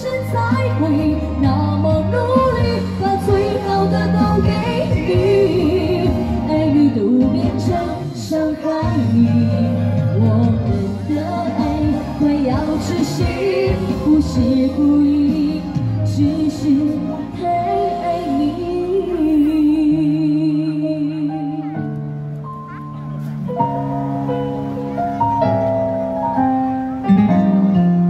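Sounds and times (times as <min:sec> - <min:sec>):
woman singing pop ballad: 0:00.0 - 0:21.9
backing music over speakers: 0:00.0 - 0:28.0.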